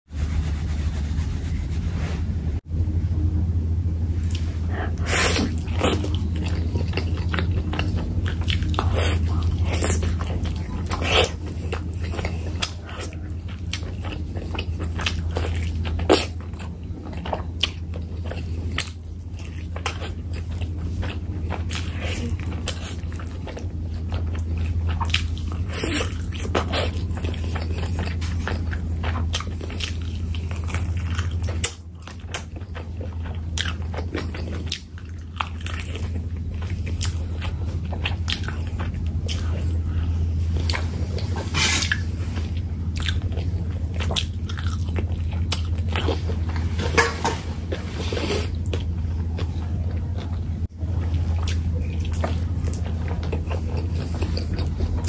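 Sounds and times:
steady low hum: 0.1s - 55.0s
biting and chewing: 4.2s - 55.0s.

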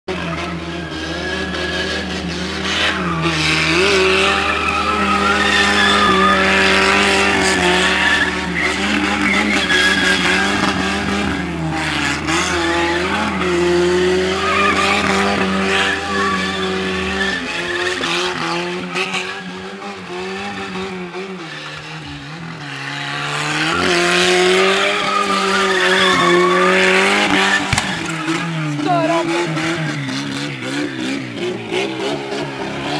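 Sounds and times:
car engine revving high: 0.1s - 32.9s
tyres squealing: 0.2s - 11.5s, 12.2s - 19.5s, 23.6s - 29.4s.

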